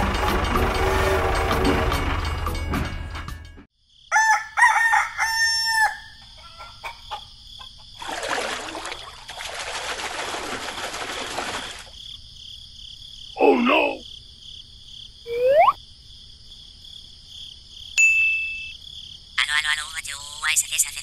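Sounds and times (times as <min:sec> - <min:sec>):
engine running: 0:00.0 - 0:02.8
rooster crowing: 0:04.1 - 0:07.3
hens clucking: 0:06.2 - 0:08.0
high-pitched tones: 0:15.3 - 0:15.8.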